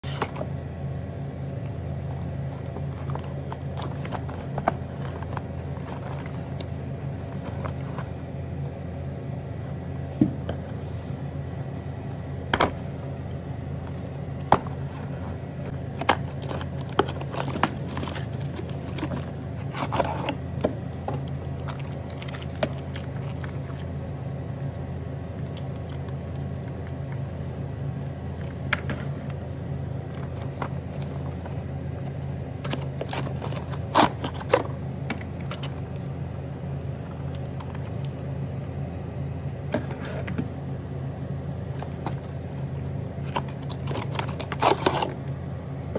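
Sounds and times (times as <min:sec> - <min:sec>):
steady low hum: 0:00.0 - 0:45.9
toy cars and box handled: 0:02.1 - 0:08.2, 0:13.9 - 0:23.8, 0:28.4 - 0:36.2, 0:41.7 - 0:45.2.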